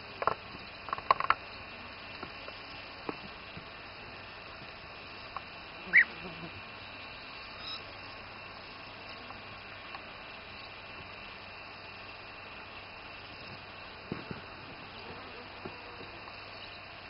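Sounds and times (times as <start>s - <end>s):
steady background hiss: 0.0s - 17.0s
bird call: 5.8s - 6.5s, 7.5s - 7.9s.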